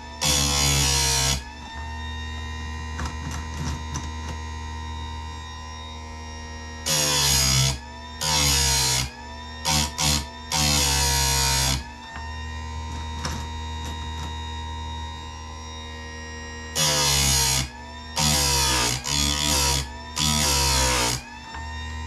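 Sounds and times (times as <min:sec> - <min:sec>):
chain grinder motor humming: 0:00.0 - 0:01.5, 0:16.8 - 0:21.3
chain grinder motor whine: 0:00.0 - 0:22.0.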